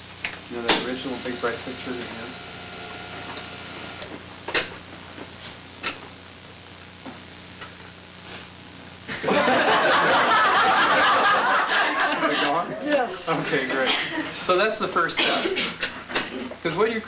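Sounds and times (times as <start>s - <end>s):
group of people laughing: 9.1s - 12.8s.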